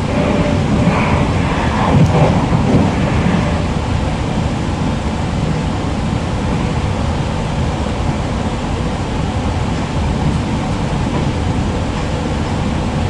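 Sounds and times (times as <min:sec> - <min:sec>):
train wheels rumbling on track: 0:00.0 - 0:13.0.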